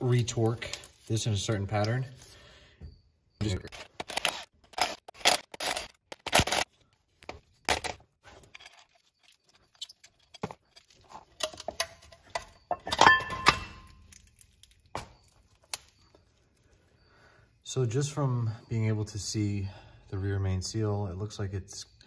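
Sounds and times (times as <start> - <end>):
metal tools clicking and clinking: 7.8 - 14.8
ringing metal clank: 11.5 - 14.0.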